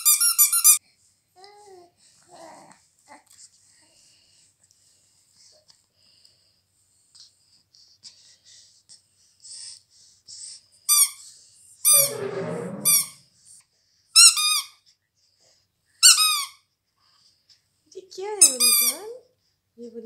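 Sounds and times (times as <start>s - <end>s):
squeaky toy squeaking: 18.4s - 19.0s.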